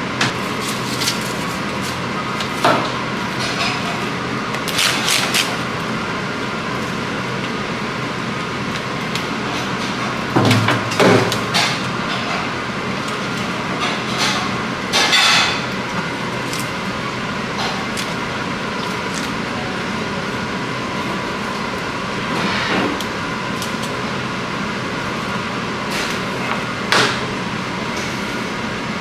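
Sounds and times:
kitchen machinery whirring hum: 0.0s - 29.0s.

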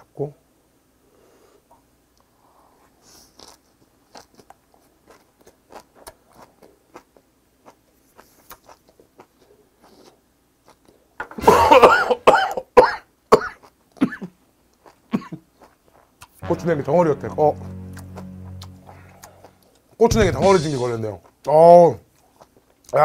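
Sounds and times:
chewing and mouth clicks: 3.4s - 11.0s, 14.7s - 16.4s, 22.1s - 23.0s
man coughing loudly: 11.4s - 13.1s.

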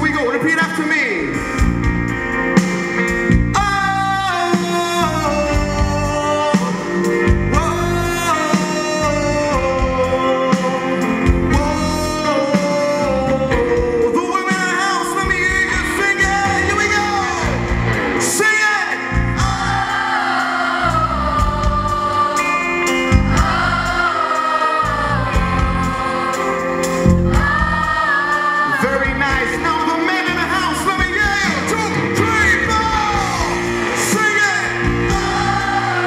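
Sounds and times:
strummed guitars: 0.0s - 36.0s
man singing long notes: 3.6s - 19.9s.

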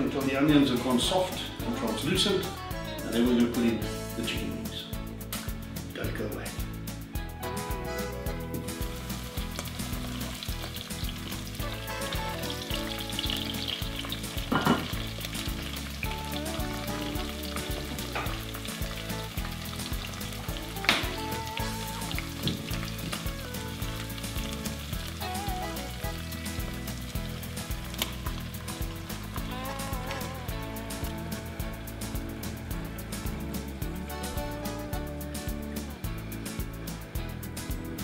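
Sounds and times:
onions sizzling in oil: 8.5s - 33.4s.

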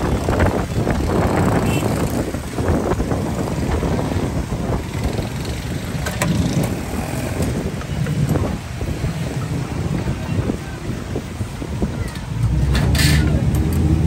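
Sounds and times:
low rumble of street-food stall: 0.0s - 14.0s.

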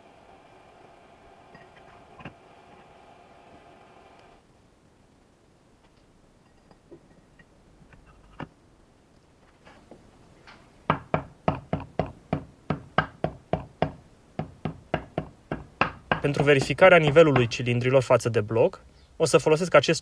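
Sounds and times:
mallet knocking on metal: 10.9s - 17.6s.

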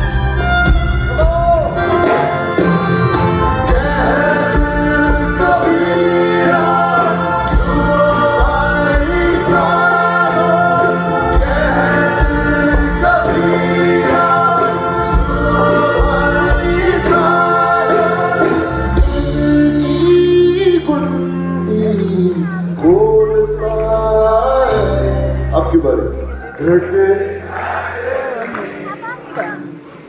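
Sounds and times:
drum kit steady beat: 0.0s - 20.2s
bass guitar: 0.0s - 27.4s
acoustic guitar: 0.0s - 30.0s
man singing lead: 1.1s - 27.4s.

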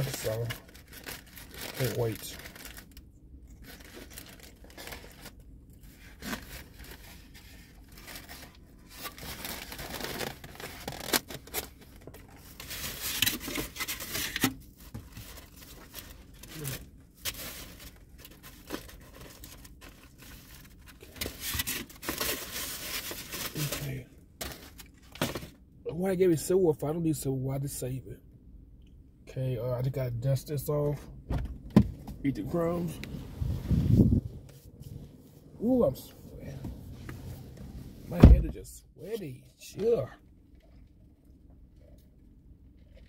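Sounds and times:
food box and wrapping rustling: 0.0s - 25.6s.

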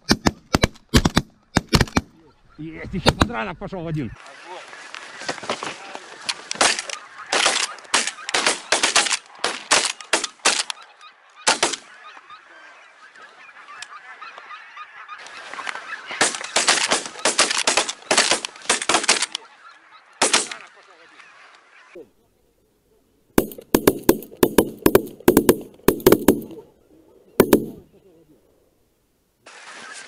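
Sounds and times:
geese honking: 3.9s - 22.6s, 23.4s - 28.4s.

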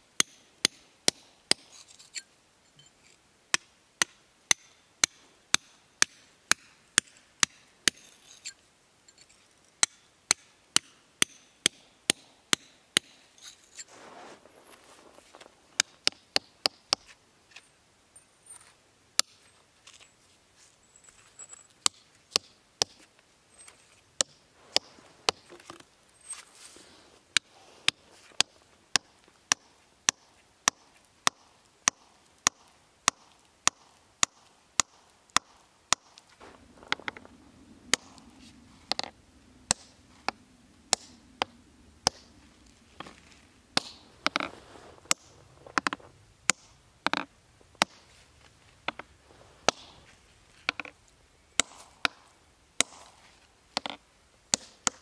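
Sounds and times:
hammer striking steel chisels: 0.2s - 13.9s, 40.9s - 42.3s, 51.6s - 53.1s.

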